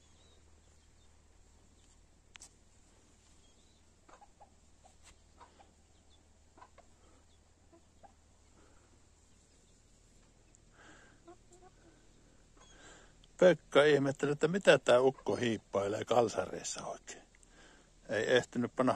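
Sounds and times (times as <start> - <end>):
chickens clucking: 3.1 - 13.3, 14.8 - 15.7.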